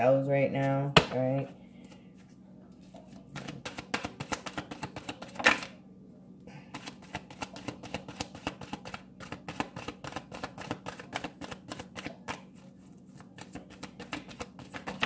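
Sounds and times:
cards being shuffled: 2.9s - 5.7s, 6.7s - 15.0s.

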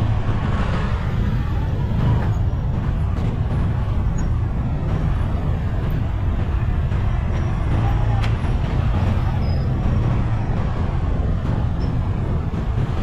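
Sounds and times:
street noise low rumble: 0.0s - 13.0s.

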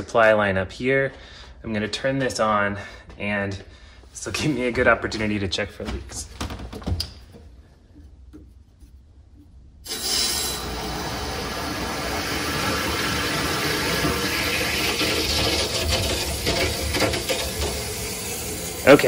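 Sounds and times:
water rushing from bathtub tap: 9.9s - 19.0s.

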